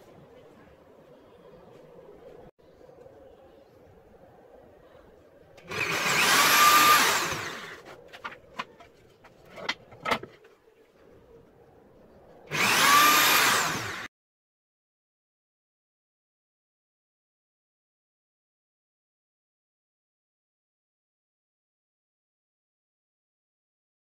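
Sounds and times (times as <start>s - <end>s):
drill press boring wood: 5.7s - 7.8s, 12.5s - 14.1s.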